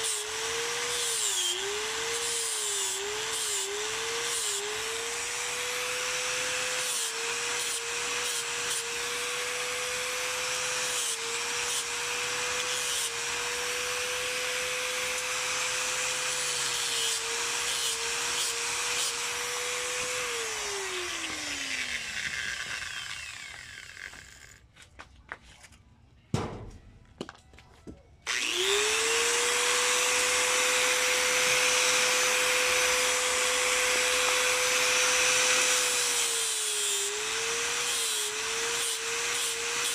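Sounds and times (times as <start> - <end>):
angle grinder grinding horn: 28.3 - 39.9.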